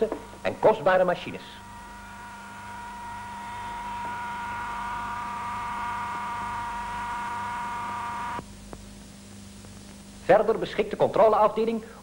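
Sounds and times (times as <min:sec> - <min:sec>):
electric motor whine: 0:00.0 - 0:08.4.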